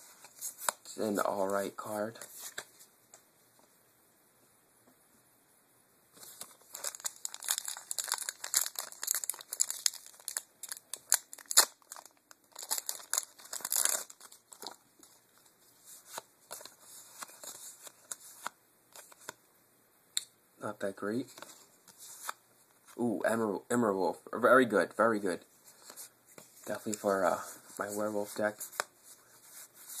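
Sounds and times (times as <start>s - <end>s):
cards rustling: 6.2s - 19.4s, 25.6s - 30.0s
foil wrapper tearing and crinkling: 6.6s - 14.8s.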